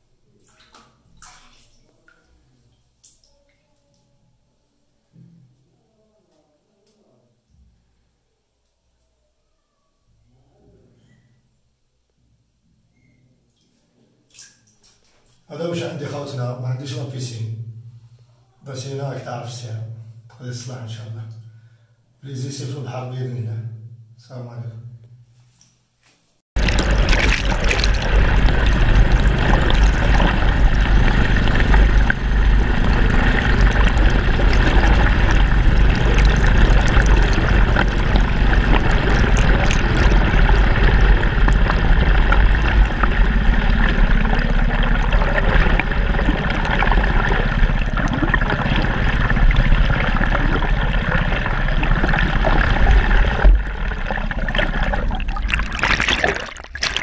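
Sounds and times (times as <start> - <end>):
low rumble: 26.6 - 57.0
muffled underwater water rush: 26.6 - 57.0.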